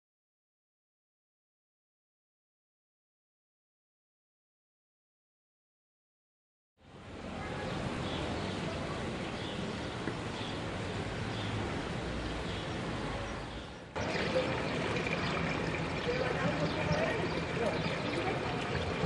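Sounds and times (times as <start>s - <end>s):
water pouring into stone trough: 14.0s - 19.0s.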